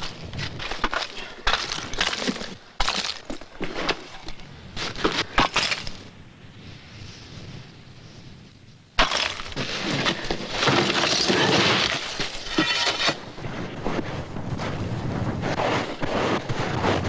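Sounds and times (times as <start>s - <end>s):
ice cracking and breaking: 0.4s - 4.2s, 4.9s - 6.0s, 9.0s - 13.2s.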